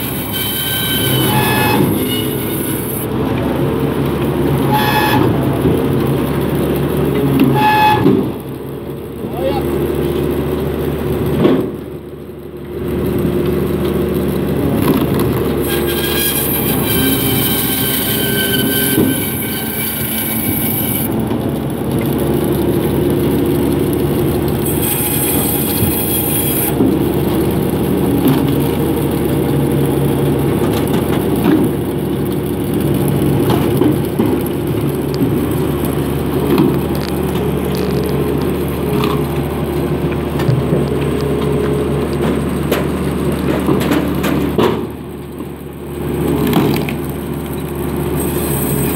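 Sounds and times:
band saw cutting wood: 0:00.0 - 0:03.1, 0:15.5 - 0:21.4, 0:24.3 - 0:27.4, 0:48.1 - 0:48.9
tractor engine running: 0:00.0 - 0:48.9.

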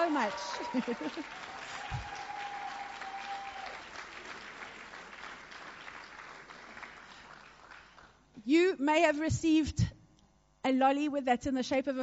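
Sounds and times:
congregation applauding: 0:00.0 - 0:08.2.

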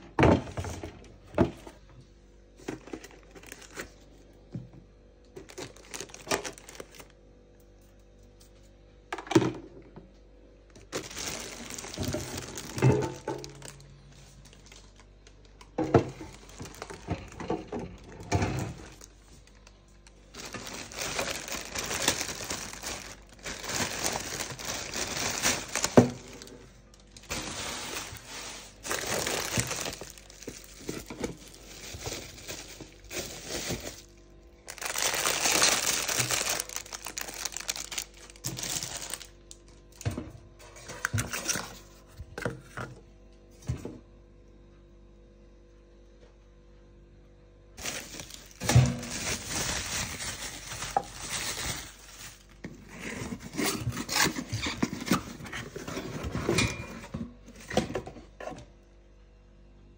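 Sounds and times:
plastic film crinkling: 0:02.7 - 0:04.2, 0:05.4 - 0:07.2, 0:10.7 - 0:40.0, 0:47.8 - 0:55.9.

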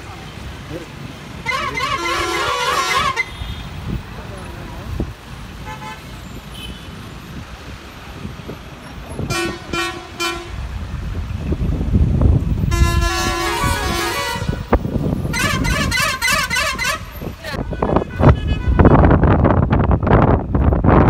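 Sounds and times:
low rumble of engines: 0:00.0 - 0:21.0
wind: 0:00.0 - 0:21.0
vehicle horns honking: 0:01.4 - 0:03.9, 0:05.6 - 0:07.1, 0:09.2 - 0:10.7, 0:12.6 - 0:19.2.

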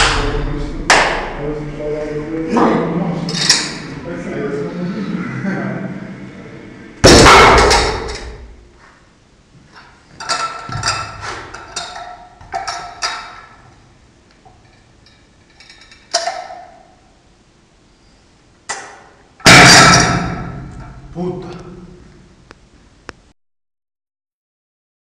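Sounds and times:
metal plates clinking: 0:10.2 - 0:13.6, 0:14.5 - 0:16.9.

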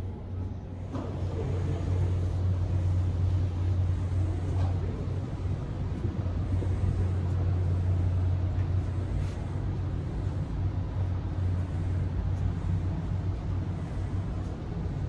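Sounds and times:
constant wash of noise: 0:00.0 - 0:15.0
low machinery hum: 0:00.0 - 0:15.0.

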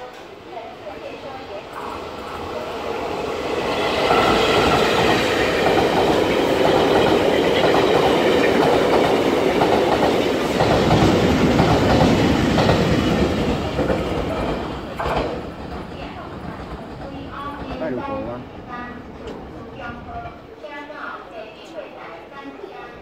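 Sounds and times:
train wheels rumbling on rail: 0:00.0 - 0:22.2.

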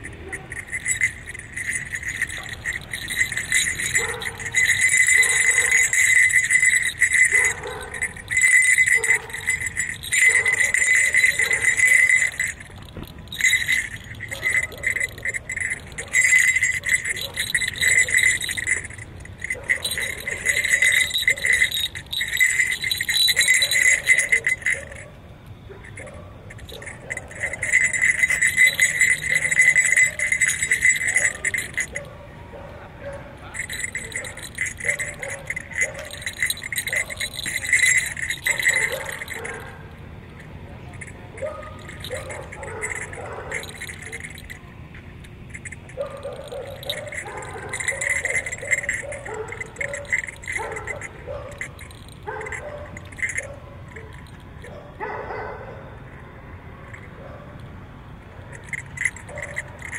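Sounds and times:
jingle bells shaking: 0:00.0 - 0:59.9.

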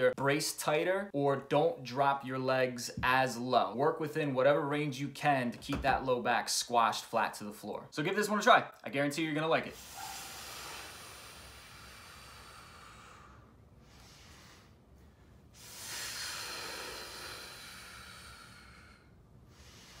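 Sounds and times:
man exhaling forcefully: 0:09.8 - 0:14.8, 0:15.6 - 0:20.0.

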